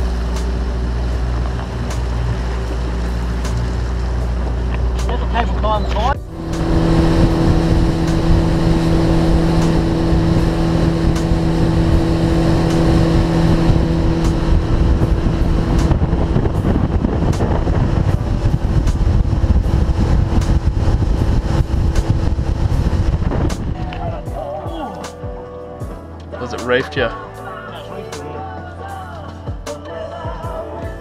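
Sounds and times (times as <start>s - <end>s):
wind buffeting microphone: 0.0s - 24.7s
outboard motor drone: 0.0s - 29.7s
rushing water: 0.0s - 31.0s.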